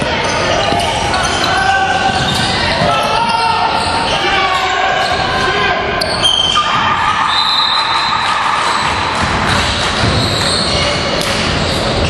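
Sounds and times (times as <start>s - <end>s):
sneaker squeaks: 0.0s - 12.0s
voices echoing in gym: 0.0s - 12.0s
basketball bouncing: 8.7s - 12.0s.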